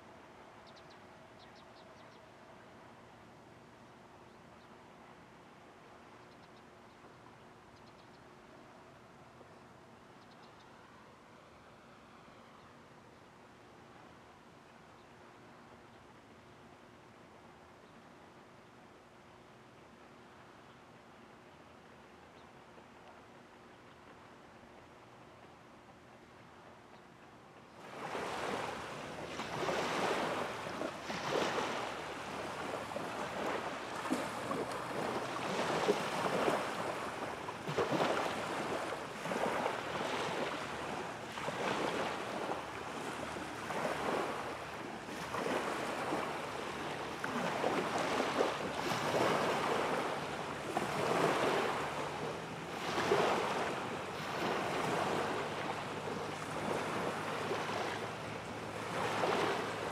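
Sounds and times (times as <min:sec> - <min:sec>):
small waves washing on shore: 0:27.8 - 0:59.9.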